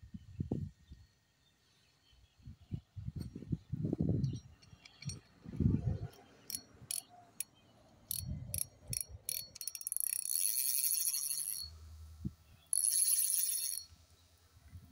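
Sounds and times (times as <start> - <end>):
fishing reel drag clicking: 8.1 - 11.7, 12.7 - 14.0.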